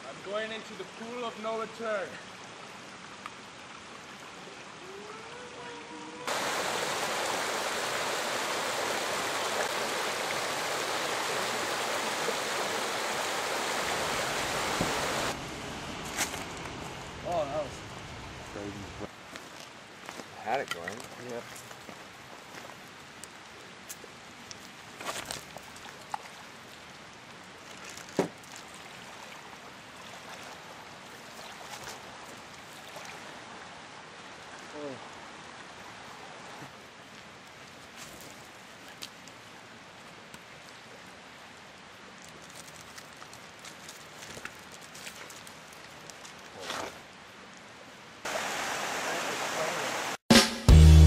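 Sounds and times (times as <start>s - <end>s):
creek splashing over stones: 0.2s - 15.4s, 19.1s - 50.2s
lake water lapping: 5.6s - 15.4s, 24.6s - 36.8s.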